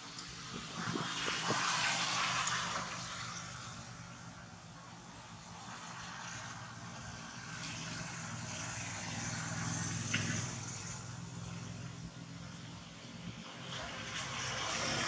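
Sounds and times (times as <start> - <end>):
engine drone: 0.0 - 15.0.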